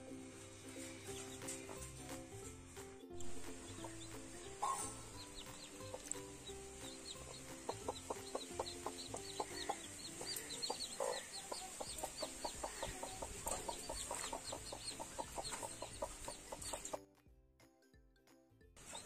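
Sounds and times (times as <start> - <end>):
chicks peeping: 0.5 - 2.3, 3.2 - 17.0, 18.8 - 19.0
hen clucking: 3.5 - 17.0.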